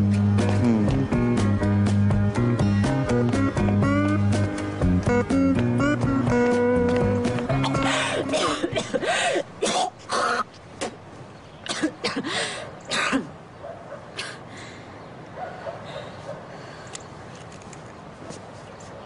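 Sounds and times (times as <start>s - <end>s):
person coughing and clearing throat: 7.5s - 10.5s, 11.7s - 12.3s, 12.9s - 13.3s.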